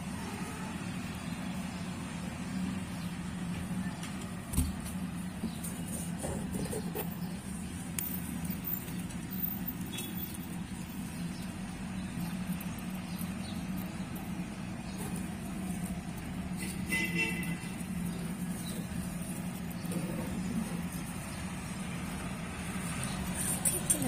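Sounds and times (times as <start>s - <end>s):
low background hum: 2.6s - 24.0s.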